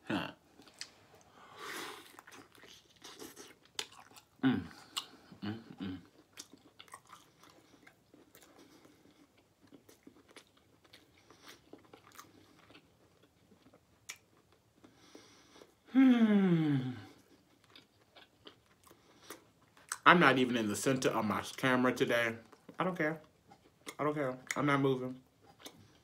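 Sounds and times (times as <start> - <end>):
close chewing with mouth clicks: 0.6 - 15.8, 17.2 - 20.0, 22.4 - 24.6, 25.3 - 26.0
person humming mm: 4.4 - 6.1, 15.9 - 17.2.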